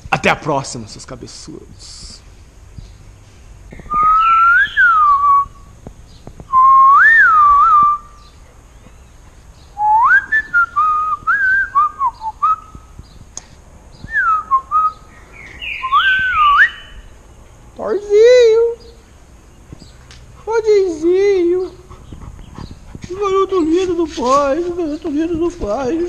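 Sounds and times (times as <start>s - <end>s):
person whistling a tune: 6.5s - 8.1s.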